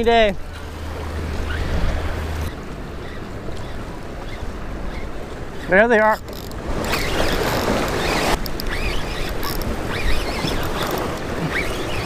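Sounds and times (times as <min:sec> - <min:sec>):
wind on microphone: 0:00.0 - 0:12.0
short high squeaks: 0:01.4 - 0:12.0
surf washing against rocks: 0:04.6 - 0:12.0.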